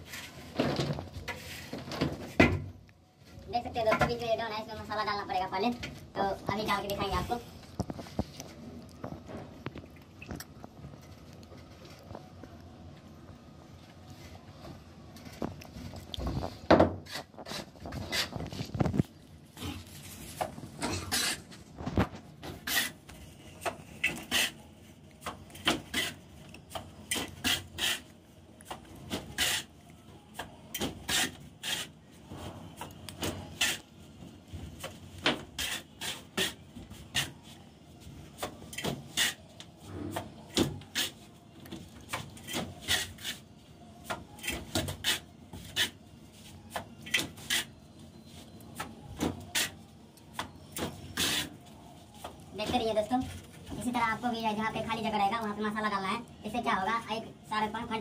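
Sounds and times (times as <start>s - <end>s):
trowel scraping mortar on concrete: 21.0s - 21.5s, 27.1s - 28.1s.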